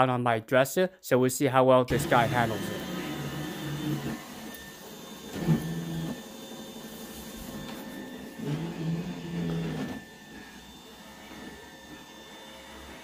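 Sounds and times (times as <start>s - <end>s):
louder motor hum: 1.9s - 13.0s
robot vacuum whirring: 1.9s - 13.0s.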